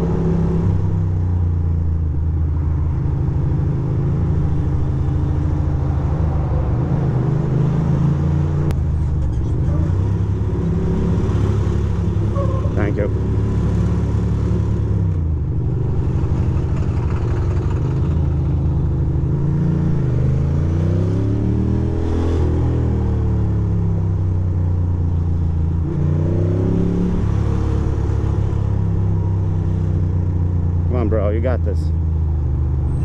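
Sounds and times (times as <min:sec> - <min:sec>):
motorcycle engine running: 0:15.5 - 0:19.2.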